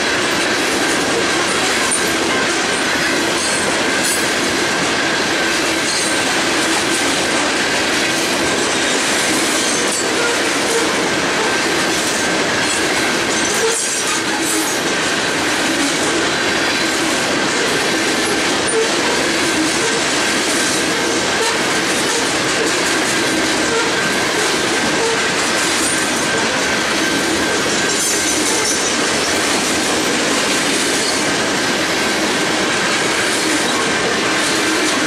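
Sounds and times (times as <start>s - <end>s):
train wheels on rails: 0.0s - 35.0s.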